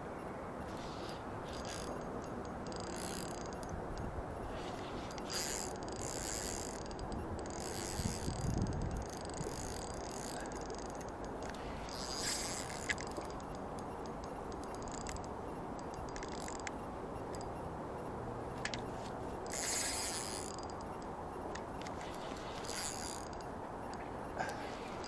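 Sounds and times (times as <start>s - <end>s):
fishing reel drag bursts: 4.5s - 13.2s, 19.5s - 20.8s
sharp clicks: 5.1s - 24.4s.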